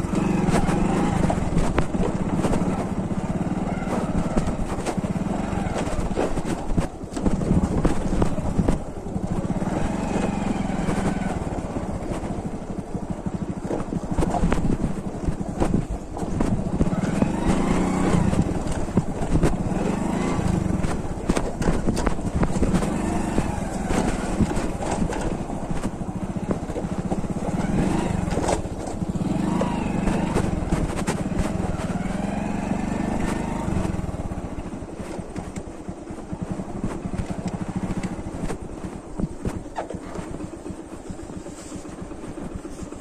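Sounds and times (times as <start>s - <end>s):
motorcycle engine on dirt track: 0.0s - 43.0s
knocks from bumpy ground: 13.6s - 32.2s.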